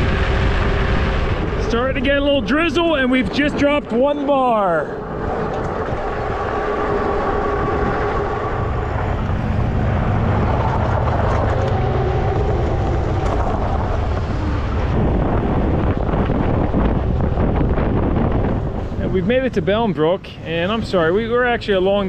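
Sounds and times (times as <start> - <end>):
bike tyres rolling on path: 0.0 - 19.8
wind rumbling on microphone: 0.0 - 22.0
electric motor whine: 4.9 - 16.6.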